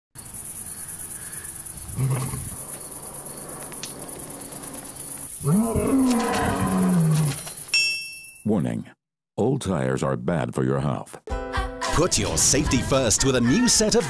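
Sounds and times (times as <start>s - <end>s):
insects trilling: 0.2s - 7.8s
low animal growl: 1.9s - 2.6s, 3.2s - 7.4s
roar-like animal call: 1.9s - 7.5s.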